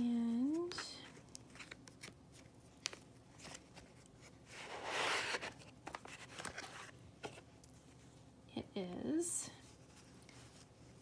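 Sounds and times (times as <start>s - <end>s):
cardboard box sliding open: 4.6s - 5.6s.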